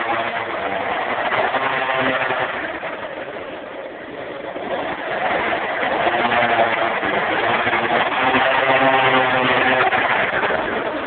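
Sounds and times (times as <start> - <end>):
scooter engine buzzing: 0.0 - 11.0.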